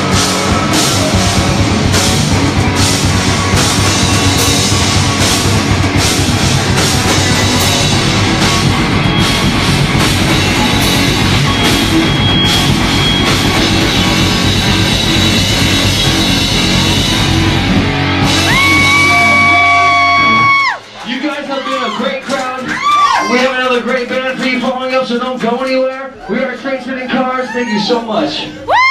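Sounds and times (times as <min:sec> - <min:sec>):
high guitar note sliding: 0:00.0 - 0:20.5
bass guitar: 0:00.0 - 0:21.1
distorted electric guitars: 0:00.0 - 0:21.1
drum kit: 0:00.0 - 0:26.0.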